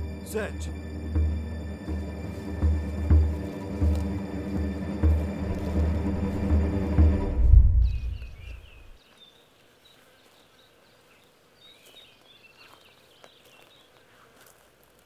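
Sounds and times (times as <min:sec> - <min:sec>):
tense film score: 0:00.0 - 0:09.0
deep boom: 0:00.8 - 0:08.9
small birds chirping: 0:07.8 - 0:15.0.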